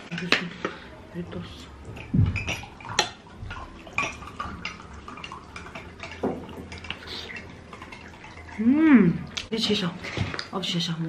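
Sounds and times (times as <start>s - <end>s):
dishes and utensils clinking: 0.0s - 8.6s.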